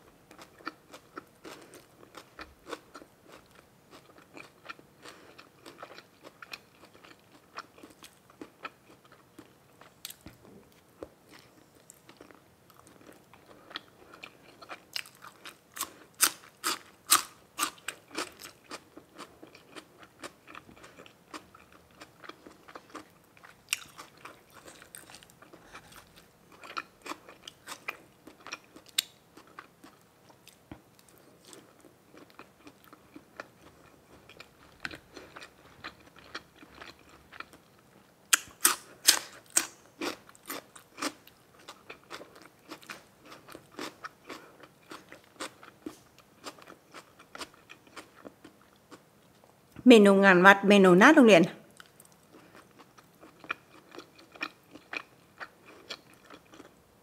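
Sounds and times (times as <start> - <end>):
person chewing and biting: 11.3 - 37.7, 38.3 - 48.8, 51.8 - 56.8.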